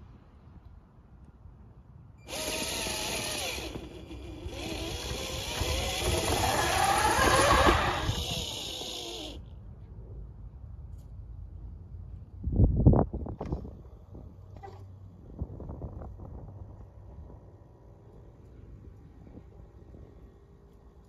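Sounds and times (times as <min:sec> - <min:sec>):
electric motors whining: 0:02.2 - 0:09.5.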